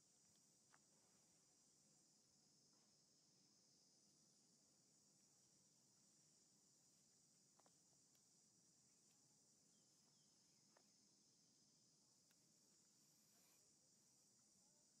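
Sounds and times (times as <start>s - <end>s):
faint insect hum: 0.0s - 15.0s
faint clicks: 7.5s - 8.4s, 10.0s - 10.9s, 12.1s - 13.0s.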